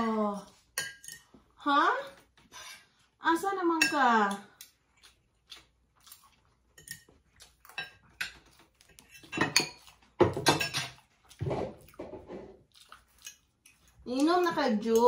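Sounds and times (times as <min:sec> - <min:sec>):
cutlery clinking on plates: 0:00.8 - 0:01.3, 0:06.8 - 0:07.1, 0:07.7 - 0:12.2.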